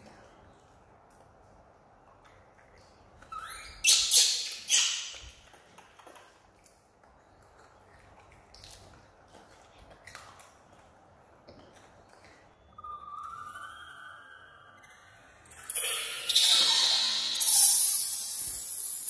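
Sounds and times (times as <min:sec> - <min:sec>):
baby monkey screaming: 0:15.7 - 0:19.0.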